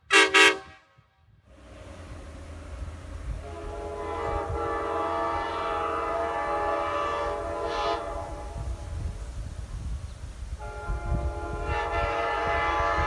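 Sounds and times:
locomotive air horn blast: 0:00.0 - 0:09.5, 0:10.6 - 0:13.0.

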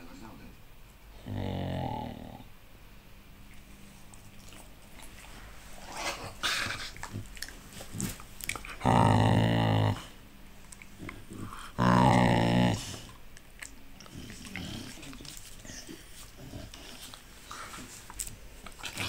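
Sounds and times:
dog growling: 0:01.1 - 0:02.5, 0:04.0 - 0:10.2, 0:10.8 - 0:13.2, 0:14.0 - 0:18.0, 0:18.6 - 0:19.0
dog mouth noises: 0:03.5 - 0:19.0
soft rustling: 0:14.9 - 0:19.0.

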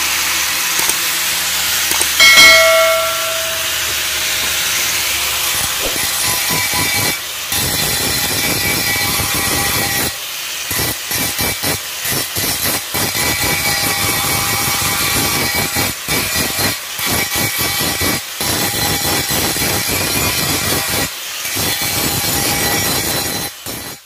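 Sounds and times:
ringing squeal: 0:02.2 - 0:04.0.

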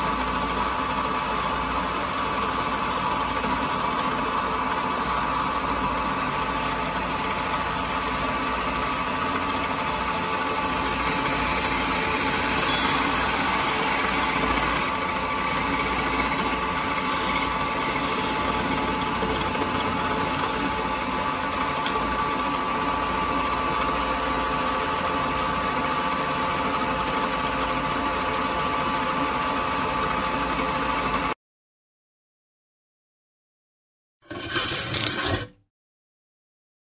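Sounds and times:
tool hissing on spinning wood: 0:00.0 - 0:20.7
wood lathe motor hum: 0:00.0 - 0:25.8.

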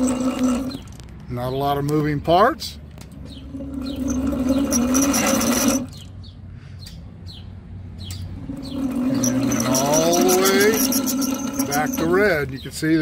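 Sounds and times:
bird chirps: 0:03.2 - 0:04.7, 0:05.9 - 0:09.3, 0:12.2 - 0:13.0.

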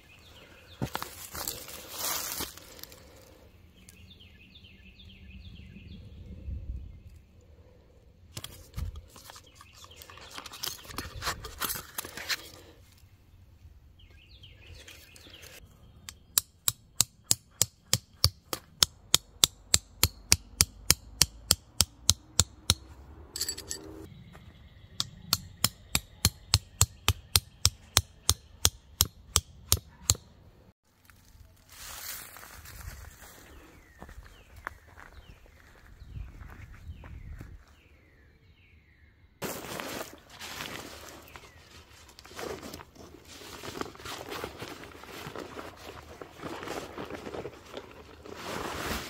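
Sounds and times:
rustling handling: 0:39.4 - 0:49.0.

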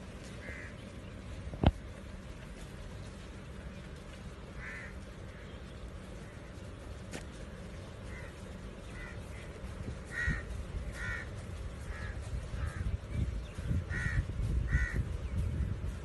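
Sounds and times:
crow cawing: 0:00.4 - 0:00.8, 0:04.5 - 0:05.6, 0:08.0 - 0:12.9, 0:13.9 - 0:15.1.

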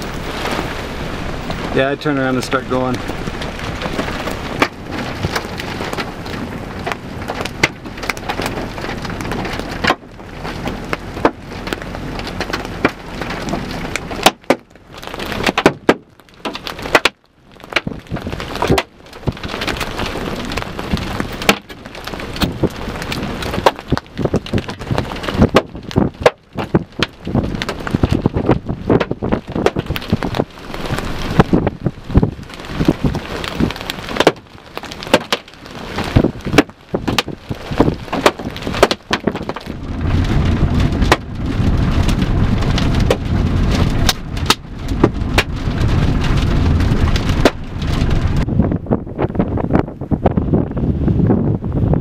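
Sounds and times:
gusty wind: 0:00.0 - 0:52.0
rain: 0:00.0 - 0:52.0
raindrops tapping microphone: 0:00.0 - 0:52.0.

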